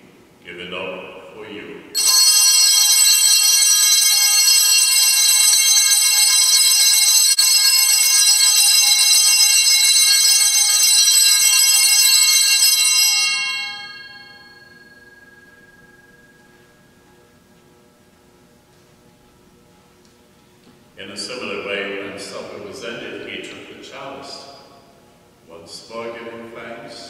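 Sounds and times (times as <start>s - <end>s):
altar bells ringing: 2.0s - 18.2s.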